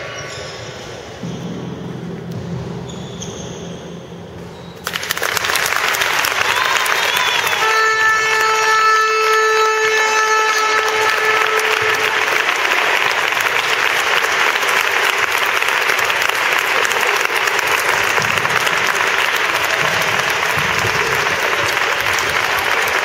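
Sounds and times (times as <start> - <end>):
audience applauding: 4.8 - 23.0.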